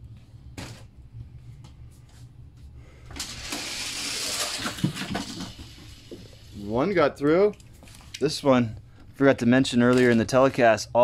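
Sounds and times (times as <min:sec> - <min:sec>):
toy cars clacking at track end: 0:03.2 - 0:06.0
toy cars rolling on plastic track: 0:03.2 - 0:06.4.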